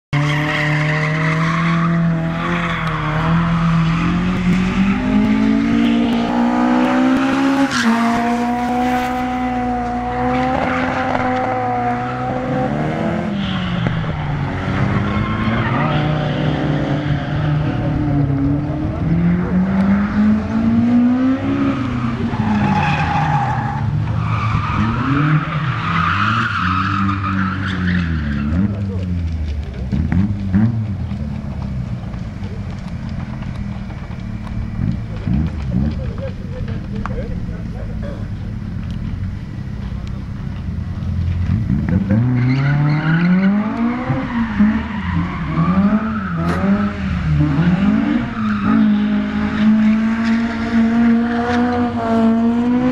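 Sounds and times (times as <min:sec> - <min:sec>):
car engines revving: 0:00.1 - 0:52.9
tyres squealing on tarmac: 0:00.2 - 0:04.2, 0:11.7 - 0:18.3, 0:21.6 - 0:29.2, 0:42.0 - 0:49.6.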